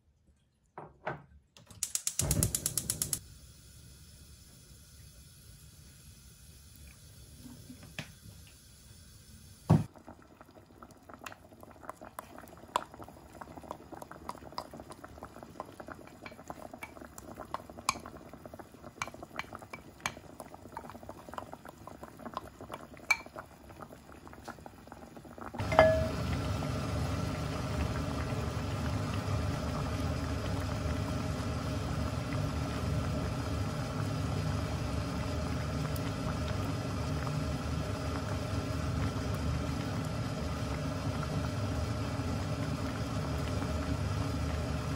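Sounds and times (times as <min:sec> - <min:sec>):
small clicks: 0:01.6 - 0:03.2
pot bubbling boil: 0:01.9 - 0:44.9
knock: 0:09.7 - 0:09.9
faint hum: 0:25.4 - 0:44.9.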